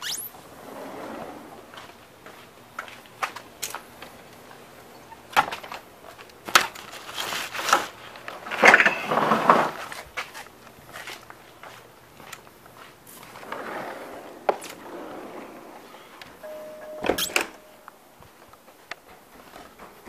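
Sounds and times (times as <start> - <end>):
footsteps: 1.7 - 4.2, 9.8 - 13.5.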